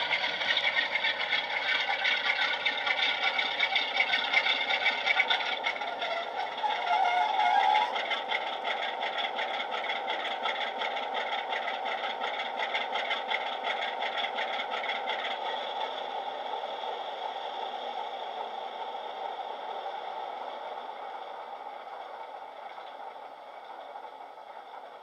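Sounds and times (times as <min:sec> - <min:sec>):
diesel engine sound from small speaker: 0:00.0 - 0:25.0.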